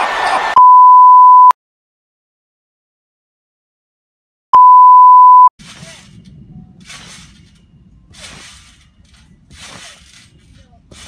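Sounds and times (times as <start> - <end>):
loud steady beep tone: 0.6 - 1.5, 4.6 - 5.5
trampoline springs and mat swishing: 5.6 - 11.0.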